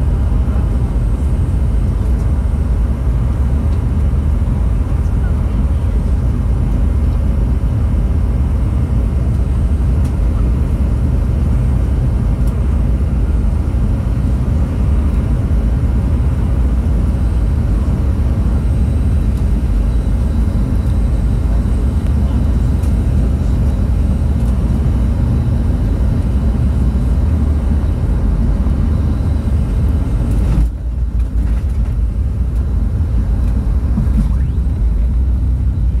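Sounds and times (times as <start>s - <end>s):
jet engines rumbling: 0.0s - 36.0s.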